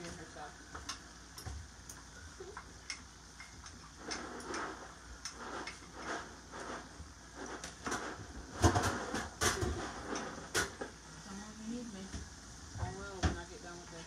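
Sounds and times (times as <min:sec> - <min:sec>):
spoon stirring in skillet: 0:00.0 - 0:10.9.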